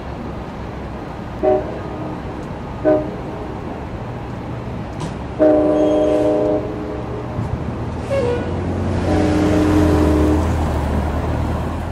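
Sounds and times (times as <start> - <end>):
low train rumble: 0.0 - 11.9
train air horn blasts: 1.4 - 2.0, 2.8 - 3.2, 5.4 - 7.4, 8.0 - 10.6.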